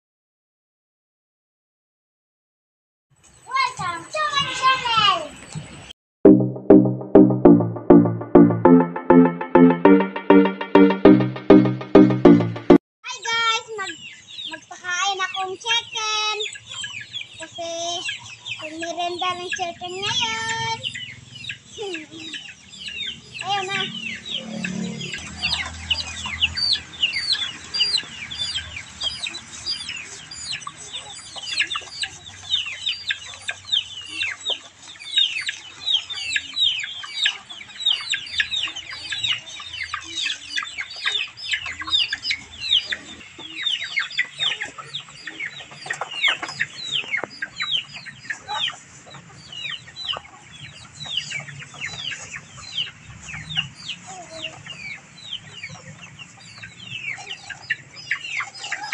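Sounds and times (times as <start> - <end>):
chicks peeping: 13.8 - 58.9.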